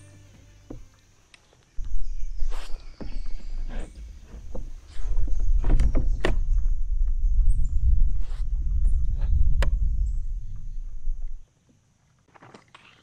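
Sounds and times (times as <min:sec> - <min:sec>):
low rumble on microphone: 0:01.8 - 0:11.4.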